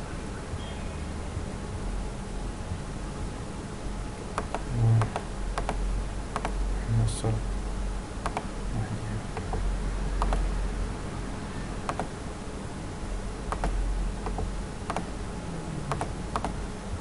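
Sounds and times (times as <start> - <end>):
low hum: 0.0 - 17.0
mouse clicking: 4.4 - 5.8, 6.4 - 6.6, 8.2 - 8.5, 10.2 - 10.5, 11.9 - 12.1, 13.5 - 15.1, 15.9 - 16.6.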